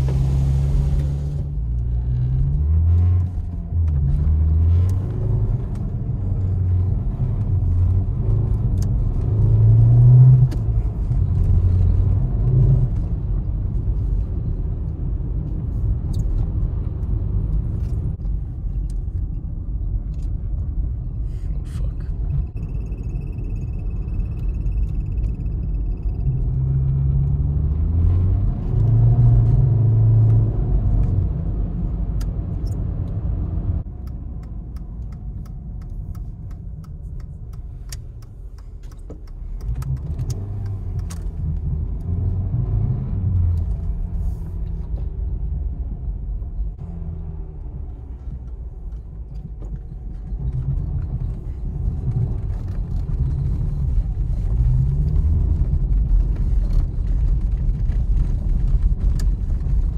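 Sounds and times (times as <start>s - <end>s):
car engine from inside cabin: 0.0s - 59.9s
tyre rumble on snowy road: 47.7s - 59.9s.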